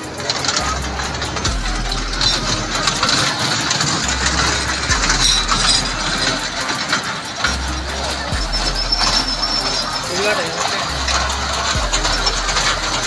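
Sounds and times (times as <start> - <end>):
kiddie train mechanical drone: 0.0 - 13.0
wheels clicking and rattling on rails: 0.0 - 13.0.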